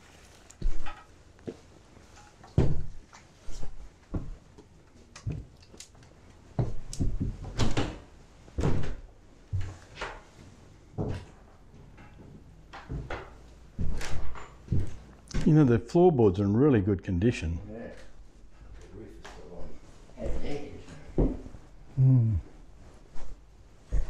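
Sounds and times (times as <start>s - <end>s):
footsteps on wooden floorboards: 2.5s - 4.7s, 6.5s - 7.6s, 10.9s - 15.6s.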